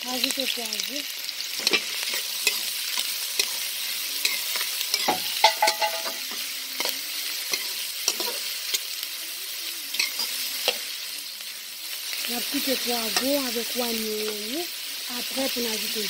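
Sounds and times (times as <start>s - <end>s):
vegetables sizzling in hot oil: 0.0s - 16.0s
metal spoon clinking against pot: 4.2s - 6.4s.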